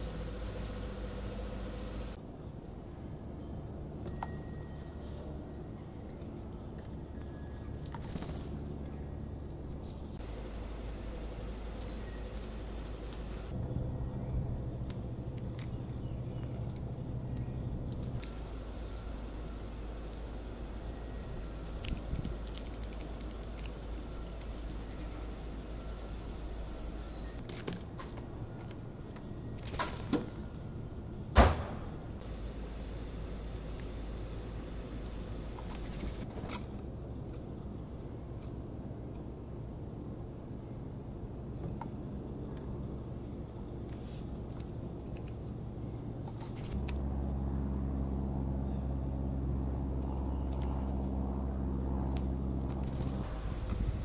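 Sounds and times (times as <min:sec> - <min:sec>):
low motor hum: 0:00.0 - 0:54.0
low steady rumble: 0:00.0 - 0:54.0
sharp clicks and crunches: 0:21.6 - 0:24.9
sharp knock: 0:31.4 - 0:31.9.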